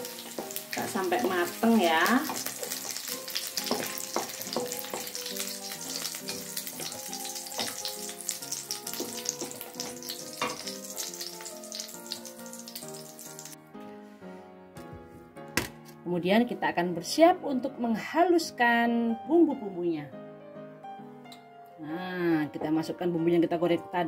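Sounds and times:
hot oil sizzling in a wok: 0.0s - 13.6s.

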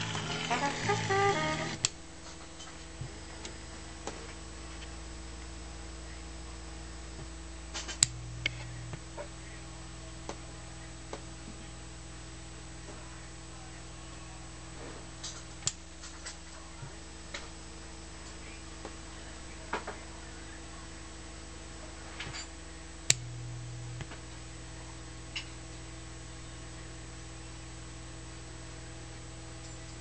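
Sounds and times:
small motor hum: 0.0s - 2.0s
low electrical hum: 0.0s - 30.0s.

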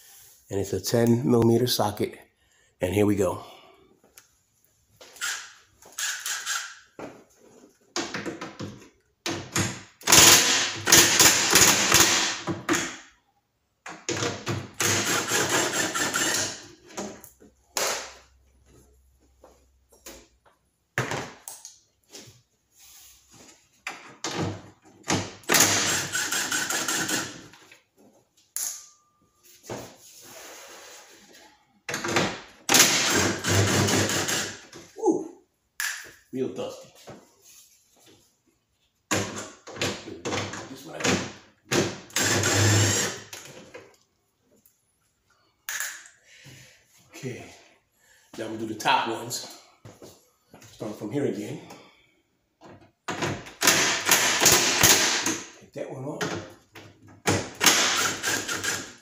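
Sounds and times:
impact driver hammering: 41.7s - 43.2s, 53.5s - 55.5s, 57.2s - 58.9s.

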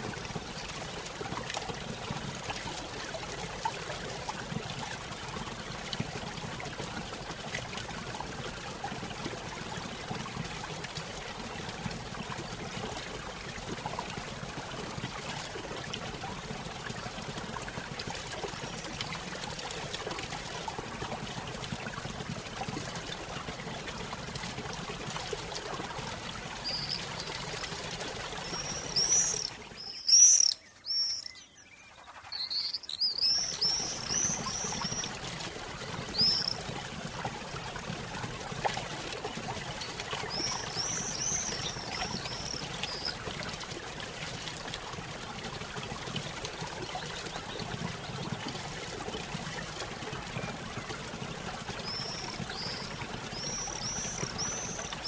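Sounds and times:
small birds chirping: 26.6s - 35.1s, 36.0s - 36.6s, 40.2s - 43.2s.

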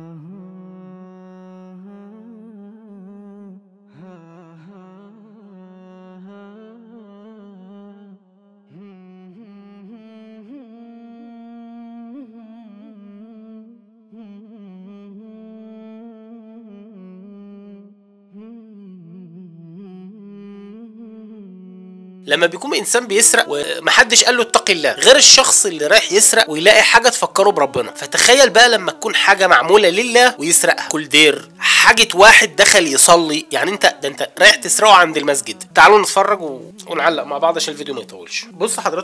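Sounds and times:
person reciting melodically: 22.2s - 39.0s.

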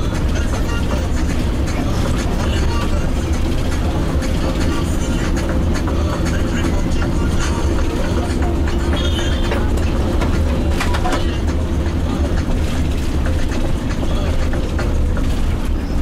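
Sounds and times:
bus engine and tyres rumbling: 0.0s - 16.0s.

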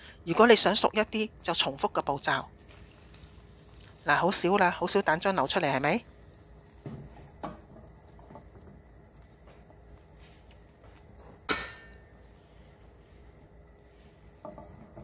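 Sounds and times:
sharp clack of kitchenware: 11.5s - 12.0s.

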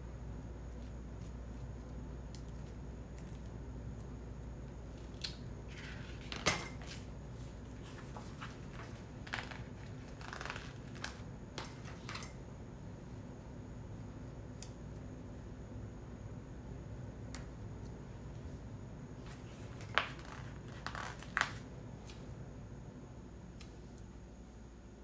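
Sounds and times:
stickers peeling rustles: 7.7s - 12.1s, 19.2s - 22.2s.

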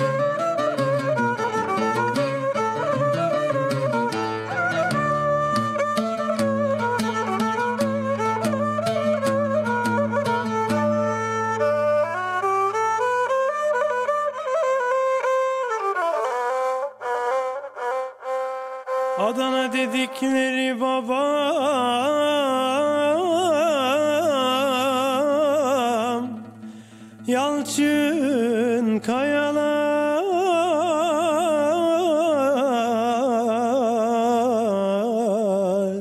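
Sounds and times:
oud playing: 0.0s - 35.0s
man singing: 19.2s - 26.5s, 27.2s - 36.0s.

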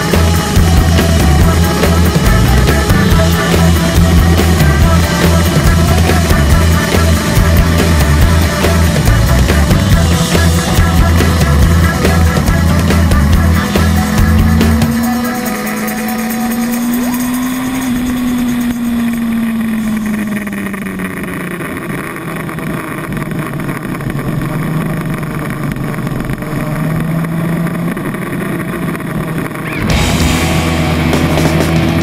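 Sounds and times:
music: 0.0s - 18.9s, 29.6s - 32.0s
motorcycle engine at speed: 0.0s - 32.0s.

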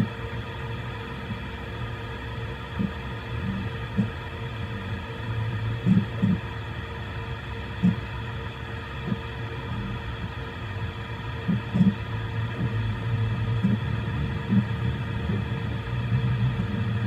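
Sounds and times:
short low buzzes: 11.4s - 17.0s.

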